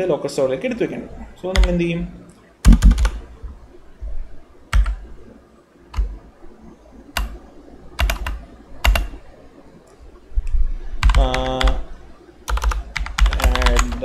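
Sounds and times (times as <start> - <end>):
computer keyboard keystrokes: 1.5 - 1.8, 2.6 - 3.2, 4.7 - 5.0, 8.0 - 9.1, 11.0 - 11.8, 12.5 - 14.0.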